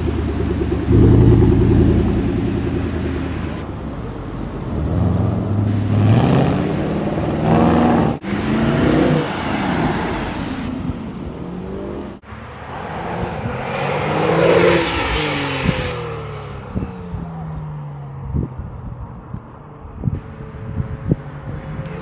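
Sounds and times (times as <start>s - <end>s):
car engines in street traffic: 0.0s - 22.0s
sports car passing by: 0.6s - 3.6s.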